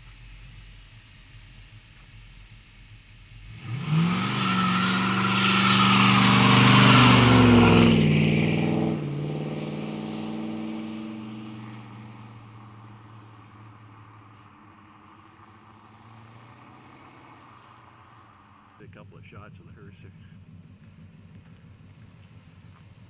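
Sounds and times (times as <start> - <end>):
car engine accelerating past: 3.4 - 19.0.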